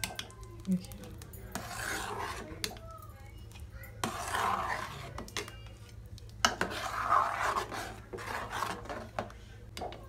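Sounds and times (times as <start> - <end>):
ladle scraping steel pot: 1.5 - 2.8, 4.0 - 5.6, 6.4 - 9.4.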